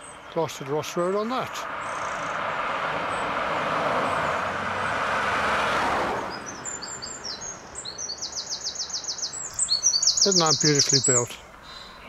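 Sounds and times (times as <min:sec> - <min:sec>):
small birds chirping: 0:00.0 - 0:03.4, 0:06.3 - 0:12.0
car driving past: 0:01.6 - 0:09.5.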